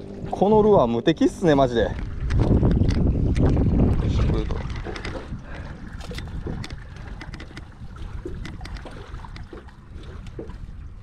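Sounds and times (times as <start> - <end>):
water lapping against boat hull: 0.0 - 11.0
light clicks and taps: 4.6 - 5.3.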